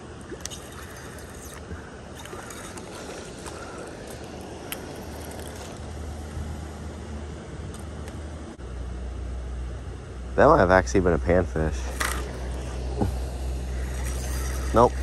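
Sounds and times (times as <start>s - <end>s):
river water flowing: 0.0s - 7.1s, 11.8s - 15.0s.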